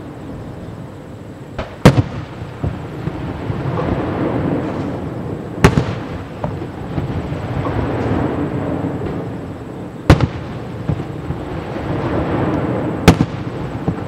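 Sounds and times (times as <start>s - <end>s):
faint firework pops: 1.6s - 4.0s, 5.6s - 8.3s, 10.1s - 11.4s, 12.4s - 14.0s
firework shells bursting: 1.6s - 14.0s.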